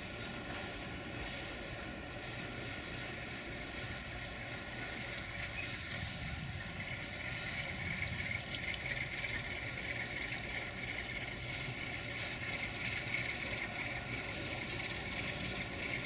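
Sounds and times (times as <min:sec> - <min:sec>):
diesel locomotive engine drone: 0:00.0 - 0:16.0
continuous high whistle: 0:03.6 - 0:16.0.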